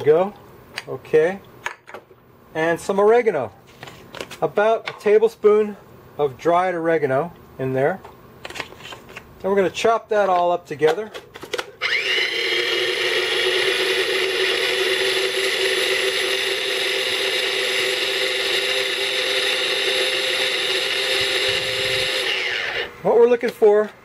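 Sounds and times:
electric food chopper running: 11.8 - 22.9.

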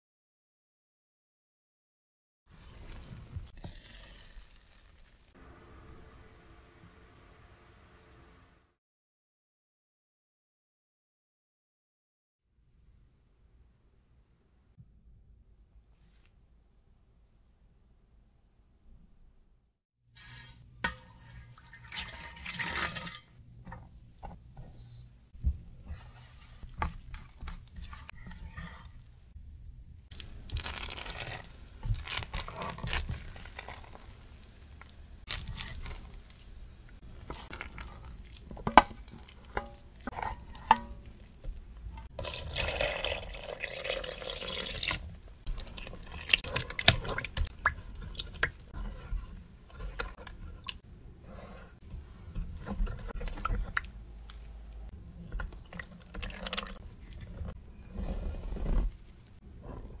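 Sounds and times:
water pouring: 2.8 - 5.4, 21.2 - 23.4, 30.2 - 34.7, 42.0 - 49.1, 55.6 - 57.4
ingredients handled in plastic tub: 30.2 - 41.8.

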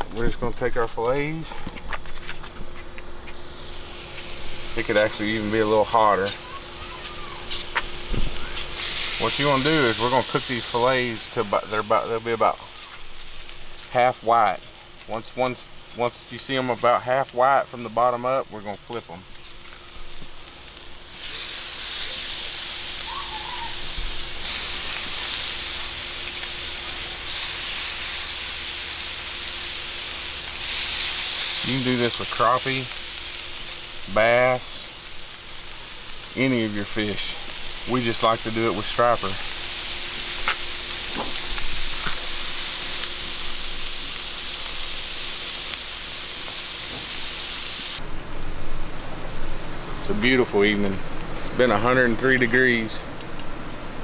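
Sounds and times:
fish sizzling on a griddle: 2.9 - 54.0.

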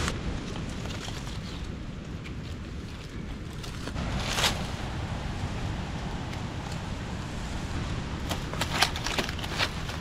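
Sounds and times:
wind buffeting microphone: 0.0 - 10.0
dry leaves rustling and crackling: 0.4 - 5.8, 8.1 - 10.0.

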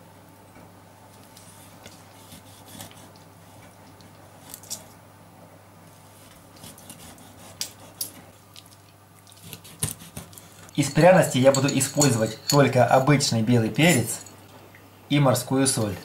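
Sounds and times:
low steady hum: 0.0 - 16.0
knife scraping through fish scales: 6.6 - 8.2, 9.4 - 10.6.

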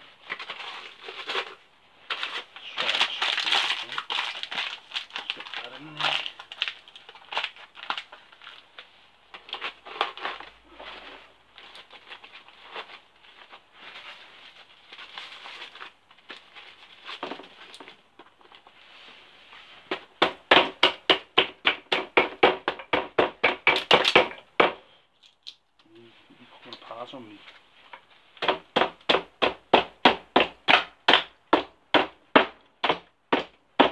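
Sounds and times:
aluminium foil crinkling: 0.1 - 18.8.

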